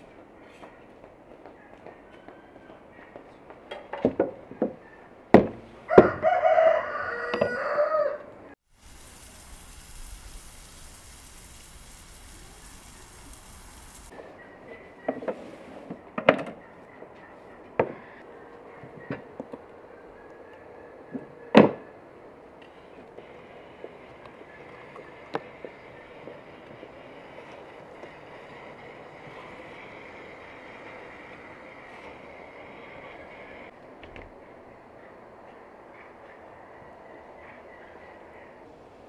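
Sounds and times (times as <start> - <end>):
rooster crowing: 5.8 - 8.6
meat sizzling on hot griddle: 8.7 - 14.1.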